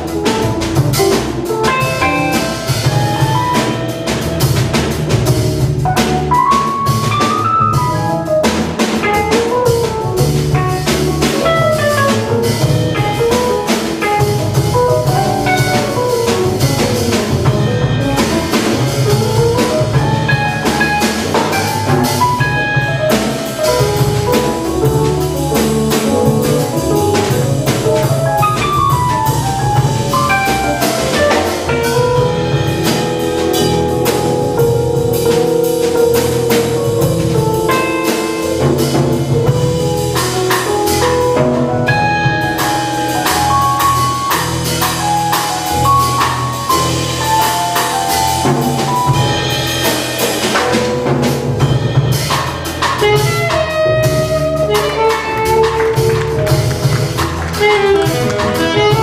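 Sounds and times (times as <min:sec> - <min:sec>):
drum kit with cymbals: 0:00.0 - 0:59.0
walking acoustic bass: 0:00.0 - 0:59.0
saxophone melody: 0:19.4 - 0:38.6, 0:52.9 - 0:59.0.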